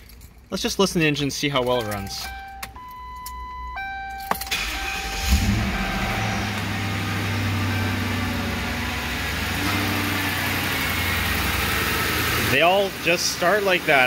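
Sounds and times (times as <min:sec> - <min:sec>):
car engine starting and idling: 0:01.6 - 0:14.0.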